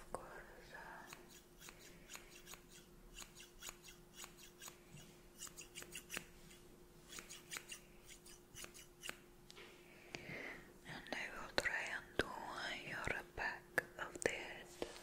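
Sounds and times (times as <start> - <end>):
scissors snipping: 1.1 - 4.8, 5.4 - 9.2.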